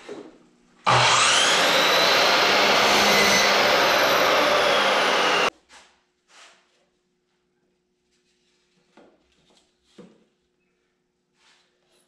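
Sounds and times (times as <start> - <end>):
miter saw cutting wood: 0.9 - 5.5.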